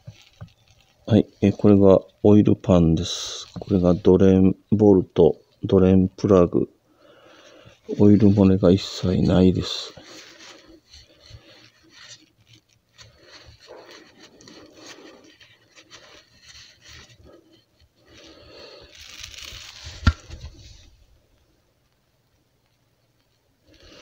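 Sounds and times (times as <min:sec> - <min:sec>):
clothing rustling and scraping: 0:00.0 - 0:02.1, 0:07.3 - 0:21.4.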